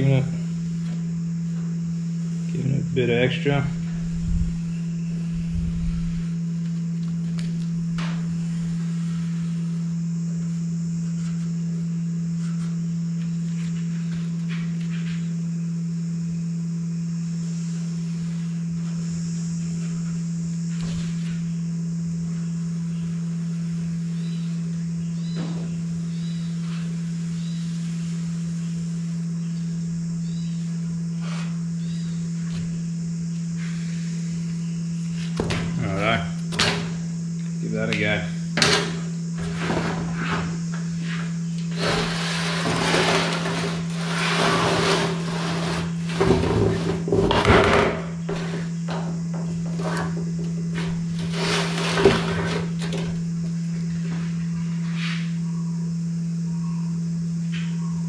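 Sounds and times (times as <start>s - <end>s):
loud low hum: 0.0s - 58.0s
faint bird chirps: 24.1s - 27.9s, 29.4s - 30.8s, 31.8s - 32.4s, 56.4s - 58.0s.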